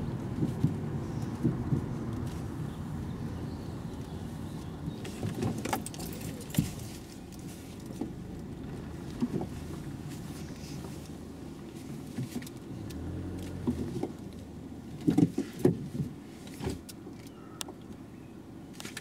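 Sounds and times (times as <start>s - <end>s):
car engine and road noise: 0.0s - 19.0s
keys clicking and jingling: 5.6s - 6.8s.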